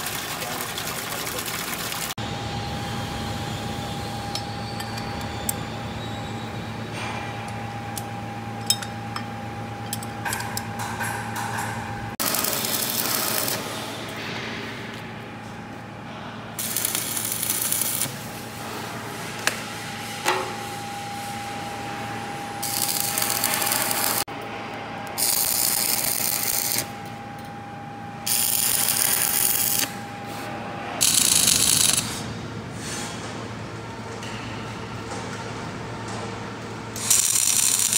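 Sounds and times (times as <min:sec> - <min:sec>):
arc welding crackling hiss: 0:12.2 - 0:13.8, 0:16.6 - 0:18.3, 0:22.6 - 0:24.3, 0:28.3 - 0:29.9, 0:31.0 - 0:32.2, 0:37.0 - 0:37.9.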